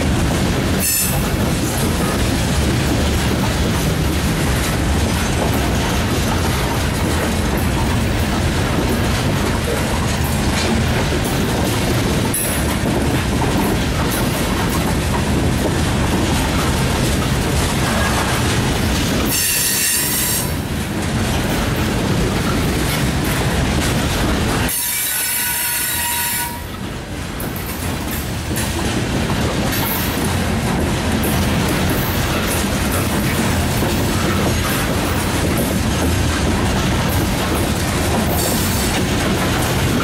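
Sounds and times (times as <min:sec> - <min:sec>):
train wheels rumbling on rails: 0:00.0 - 0:40.0
train wheels squealing: 0:24.7 - 0:26.6.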